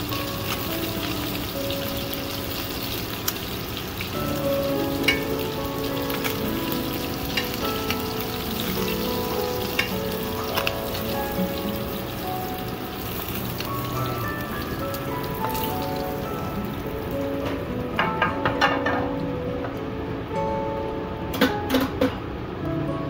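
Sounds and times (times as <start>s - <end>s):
fish sizzling in oil: 0.0s - 17.4s.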